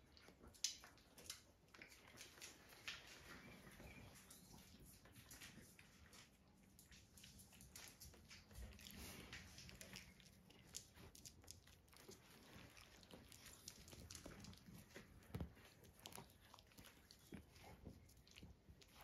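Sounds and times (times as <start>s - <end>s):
puppies scuffling and rustling: 0.0s - 19.0s.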